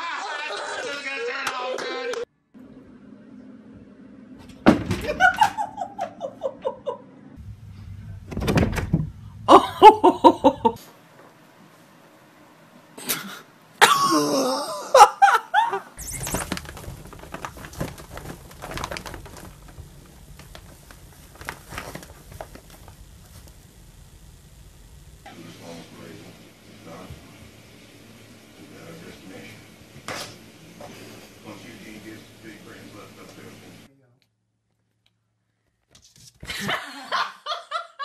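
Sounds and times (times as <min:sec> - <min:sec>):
people laughing: 0:00.0 - 0:02.2, 0:05.0 - 0:07.3, 0:09.5 - 0:10.8, 0:13.8 - 0:16.0, 0:36.5 - 0:38.0.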